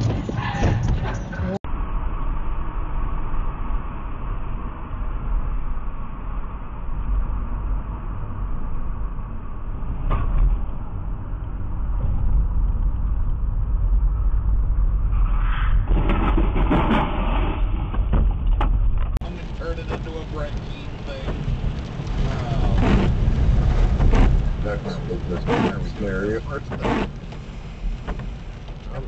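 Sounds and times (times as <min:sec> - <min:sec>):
car road and engine rumble: 0:00.0 - 0:15.2, 0:15.9 - 0:29.0
vehicle collision crash: 0:15.6 - 0:29.0.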